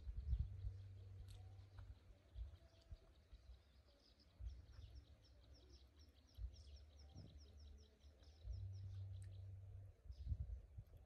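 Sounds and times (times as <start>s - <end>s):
uneven low rumble: 0.0s - 3.1s, 8.4s - 11.0s.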